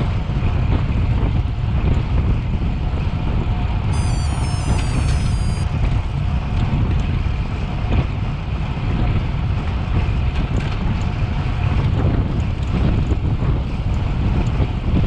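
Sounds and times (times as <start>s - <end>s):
short electronic chime: 3.9s - 5.7s
wind buffeting microphone: 5.6s - 15.0s.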